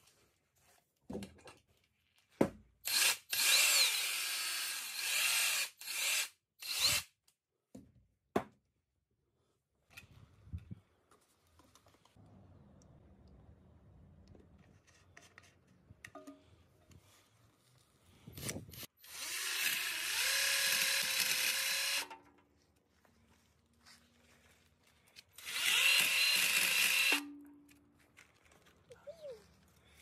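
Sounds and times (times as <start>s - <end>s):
drill chainsaw cutting tree: 2.9s - 7.0s, 19.0s - 22.1s, 25.4s - 27.2s.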